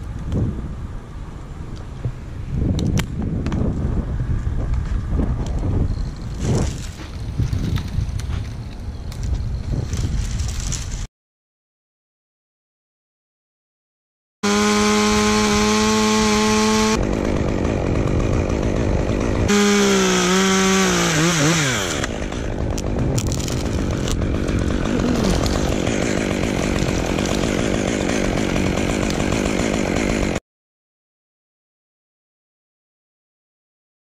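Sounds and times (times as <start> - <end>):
chainsaw engine running: 14.4 - 30.4.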